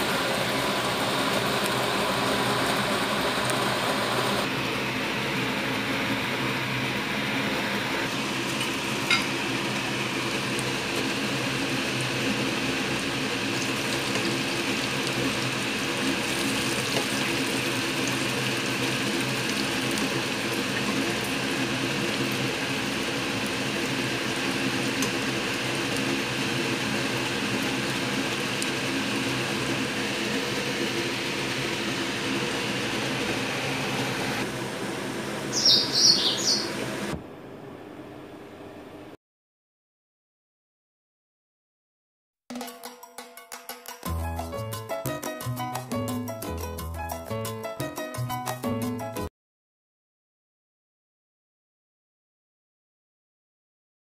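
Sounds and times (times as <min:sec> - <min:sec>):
fritters sizzling in hot oil: 0:08.1 - 0:34.3.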